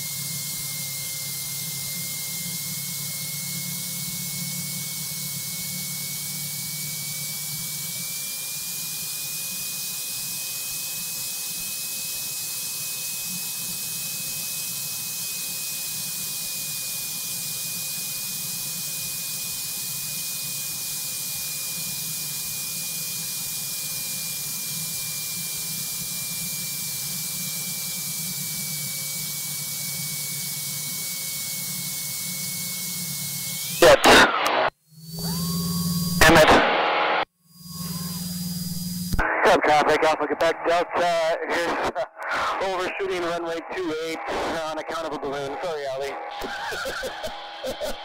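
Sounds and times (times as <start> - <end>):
thin high whine: 27.3 - 48.0
low engine drone: 33.2 - 48.0.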